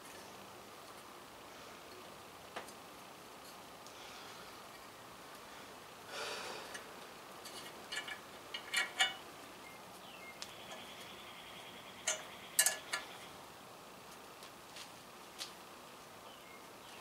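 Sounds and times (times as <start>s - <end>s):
rustle: 0.0s - 17.0s
metallic clicks and clinks: 7.4s - 9.2s, 12.0s - 13.2s.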